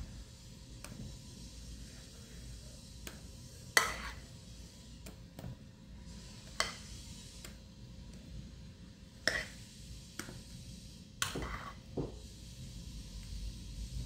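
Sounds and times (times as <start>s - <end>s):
spoon scraping glass bowl: 3.7s - 4.3s, 9.2s - 9.6s, 11.2s - 11.9s.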